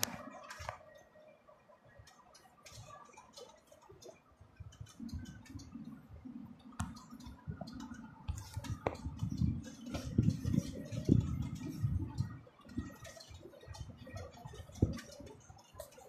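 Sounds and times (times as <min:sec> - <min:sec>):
tyres on rough dirt road: 0:06.9 - 0:16.0.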